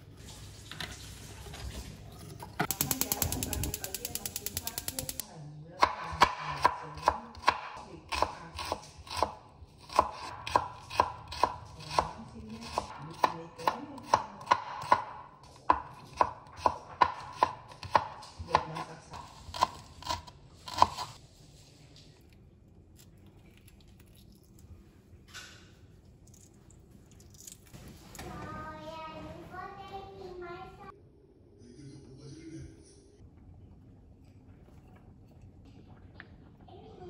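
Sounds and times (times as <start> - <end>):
knife chopping on wooden board: 5.8 - 21.2.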